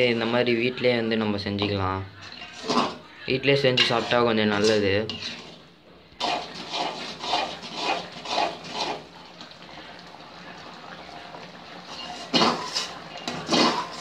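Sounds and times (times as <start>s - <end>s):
metal ladle scraping a pan: 1.6s - 9.2s, 11.8s - 14.0s
syrup bubbling: 5.4s - 14.0s.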